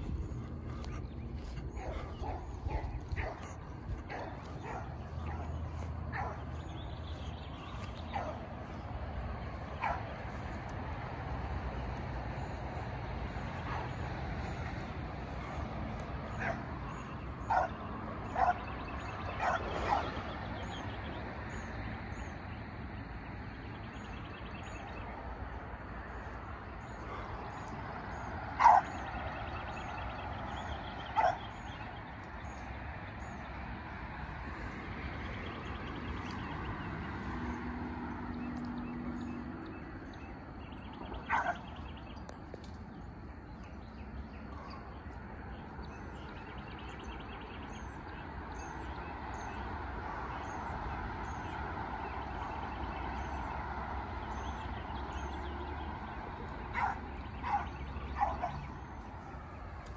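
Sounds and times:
puppy barking: 1.7 - 6.5, 8.1 - 8.4, 9.8 - 10.1, 16.3 - 16.7, 17.4 - 18.6, 19.3 - 20.2, 28.6 - 29.0, 31.2 - 31.5, 41.2 - 41.7, 56.7 - 58.7.

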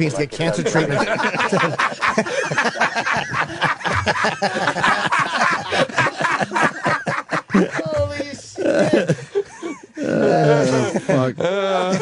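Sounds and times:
men laughing: 0.0 - 12.0.

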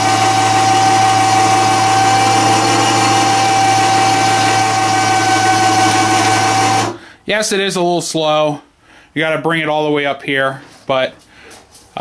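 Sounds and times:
electric winch motor whining: 0.1 - 6.9.

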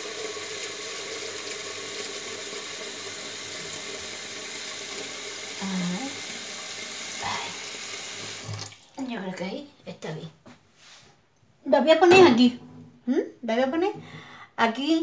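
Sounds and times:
tap water filling a pot: 0.0 - 9.4.

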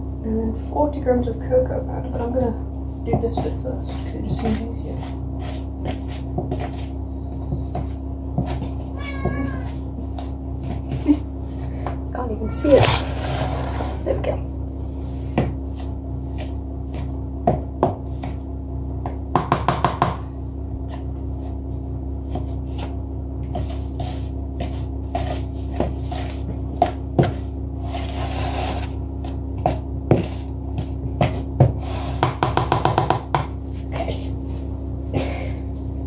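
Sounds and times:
steady low hum: 0.0 - 36.0
spoon scraping a mixing bowl: 3.2 - 10.9, 20.8 - 32.9.

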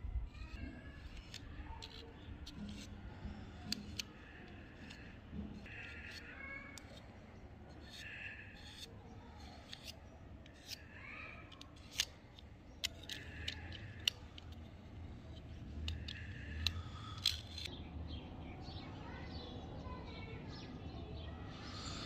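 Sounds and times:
metal blade scraping: 0.4 - 7.1, 7.7 - 14.7, 15.8 - 17.7
blade clicking on metal edges: 1.0 - 7.0, 7.8 - 8.9, 9.5 - 10.9, 11.5 - 14.6, 15.4 - 17.7.

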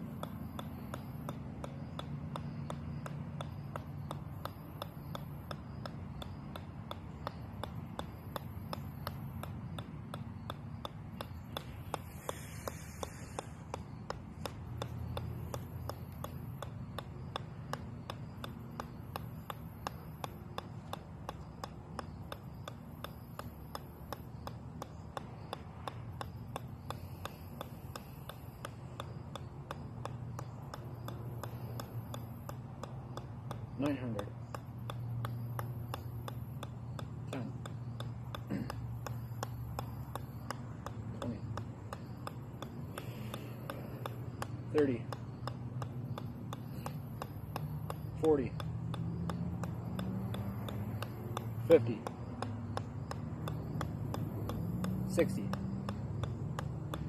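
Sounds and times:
golf ball bouncing on sledgehammer: 0.0 - 57.0.

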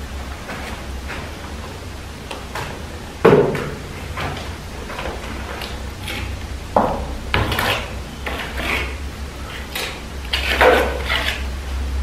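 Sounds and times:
trowel scraping plaster: 5.3 - 6.4, 7.4 - 11.5.

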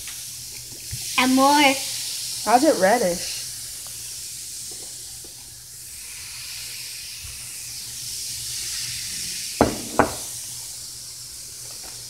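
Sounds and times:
cider fizzing and foaming: 0.0 - 12.0
sharp knocks: 9.6 - 10.3.

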